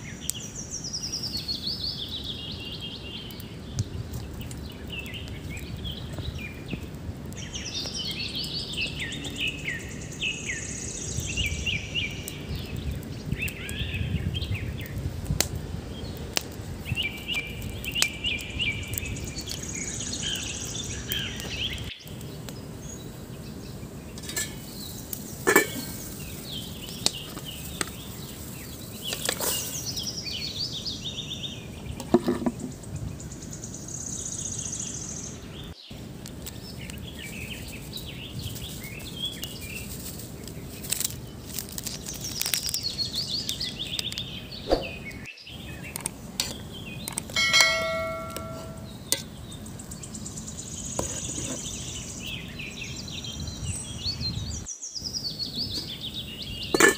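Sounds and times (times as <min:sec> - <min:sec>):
birds chirping: 0:00.0 - 0:56.9
pot and lid clinking: 0:24.2 - 0:24.7, 0:25.4 - 0:26.0, 0:47.3 - 0:49.2
metallic clang: 0:47.4 - 0:49.2.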